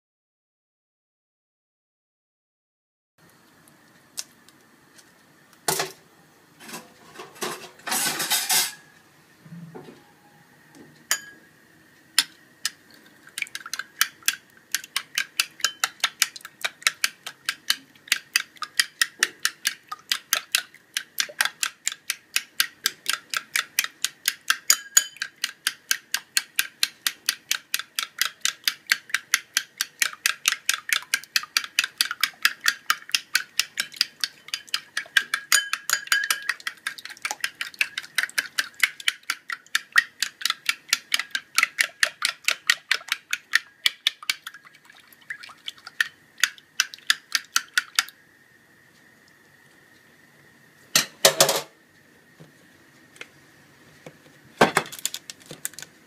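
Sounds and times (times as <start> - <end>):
fork beating eggs in bowl: 12.2 - 48.1.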